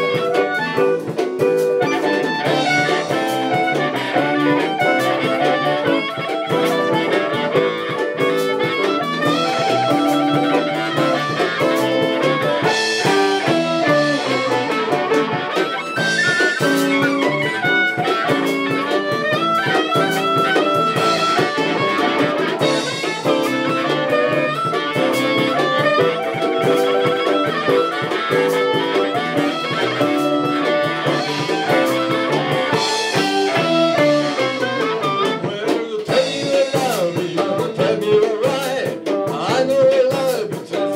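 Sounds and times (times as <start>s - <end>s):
lead melody line: 0.0s - 40.0s
drum kit: 0.0s - 40.9s
electric guitars: 0.0s - 40.9s.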